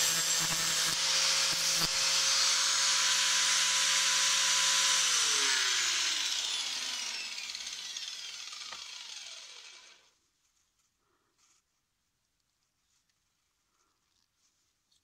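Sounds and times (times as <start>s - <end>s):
electric motor spinning down: 0.0s - 10.1s.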